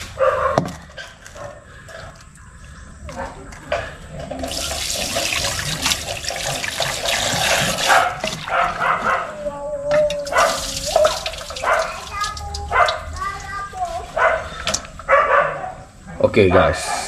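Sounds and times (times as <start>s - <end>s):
tap water running into bowl: 4.3s - 8.5s, 10.2s - 13.7s.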